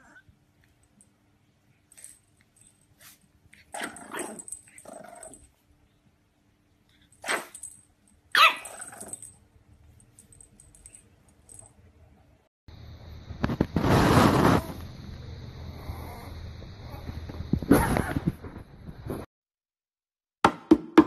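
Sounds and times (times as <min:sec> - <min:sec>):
puppy barking: 0:08.3 - 0:09.2.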